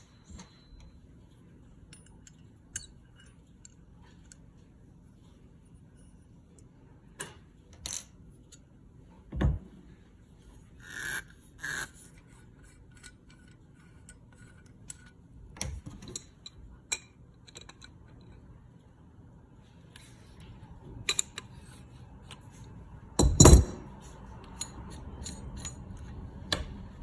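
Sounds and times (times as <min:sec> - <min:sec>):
metal parts clicking and knocking: 0:01.8 - 0:04.5, 0:12.9 - 0:18.4, 0:23.2 - 0:23.8, 0:24.4 - 0:26.6.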